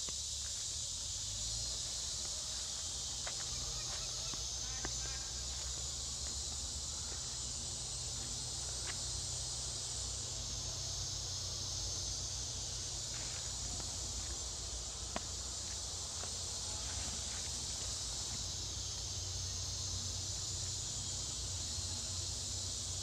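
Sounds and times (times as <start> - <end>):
high-pitched insect chorus: 0.0 - 23.0.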